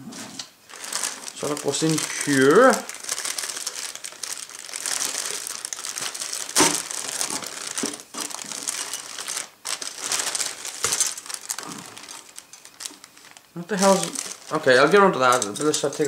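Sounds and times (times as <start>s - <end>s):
plastic bag crinkling: 0.6s - 16.0s
loud crackle or knock: 4.8s - 11.8s.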